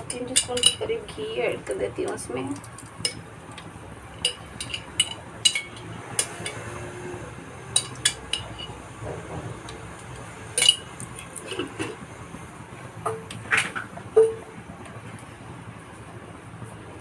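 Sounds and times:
spoon clinking on jar and pot: 0.0s - 0.8s, 3.0s - 3.2s, 4.2s - 6.6s, 7.7s - 8.8s, 10.5s - 11.2s.

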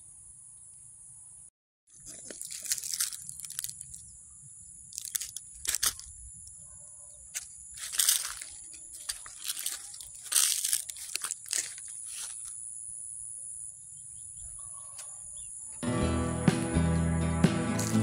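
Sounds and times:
crickets droning: 0.0s - 15.9s
footsteps crunching on soil: 1.9s - 4.0s, 7.3s - 12.6s, 17.6s - 18.0s.

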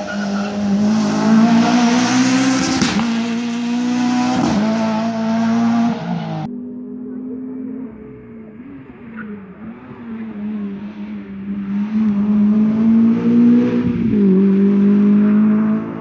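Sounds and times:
rally car engine revving: 0.0s - 16.0s.

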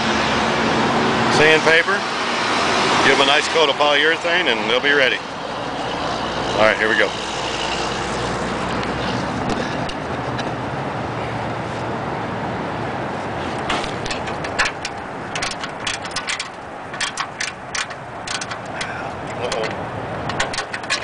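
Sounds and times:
ratcheting wrench clicking: 13.6s - 21.0s.

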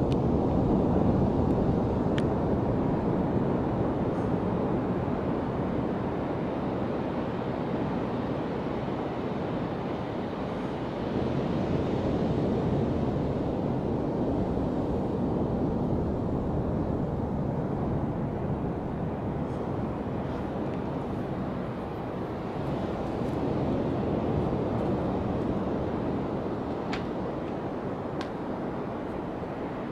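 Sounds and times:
low surf on beach: 0.0s - 29.9s
wind noise on microphone: 0.0s - 29.9s.

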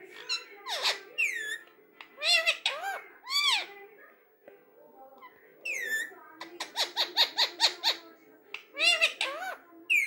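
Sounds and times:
parakeet calling: 0.2s - 1.6s, 2.2s - 3.7s, 5.6s - 8.1s, 8.7s - 10.0s.

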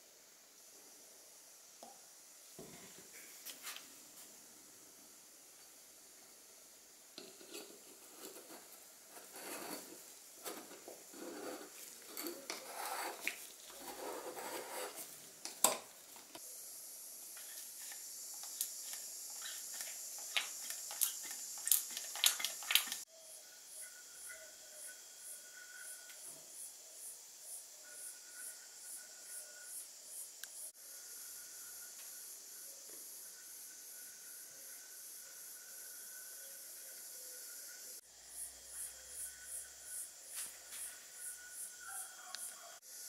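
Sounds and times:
metal cap rasping on threads: 7.2s - 15.0s
metal parts scraping and rubbing: 7.2s - 15.2s, 17.4s - 23.0s.

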